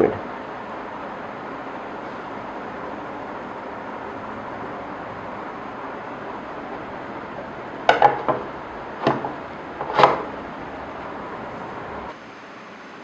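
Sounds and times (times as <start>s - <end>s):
hard object knocks and clatters: 7.9s - 10.3s.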